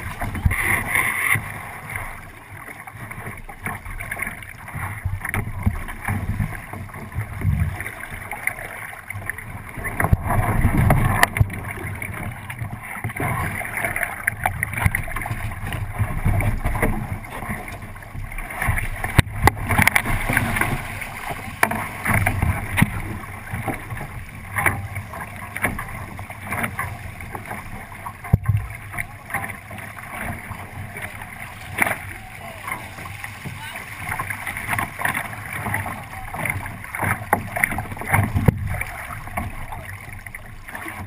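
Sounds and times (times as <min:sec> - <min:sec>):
water splashing along hull: 0:00.0 - 0:41.0
sharp knocks on boat: 0:14.2 - 0:39.8.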